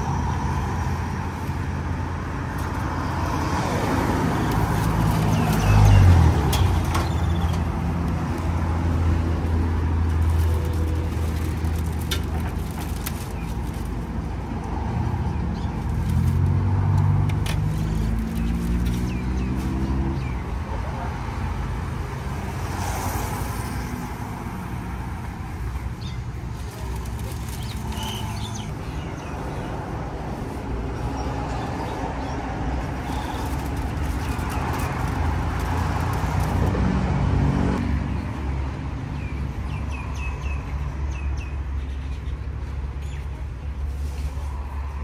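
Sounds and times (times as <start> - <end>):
vehicle passing: 0.0 - 13.8, 14.4 - 25.7, 26.3 - 39.2
road traffic: 0.0 - 45.0
birds chirping: 25.6 - 29.9.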